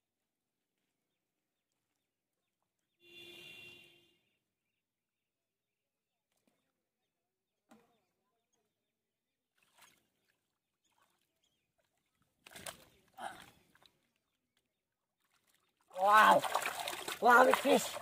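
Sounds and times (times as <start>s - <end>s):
hands splashing in muddy water: 9.5s - 18.0s.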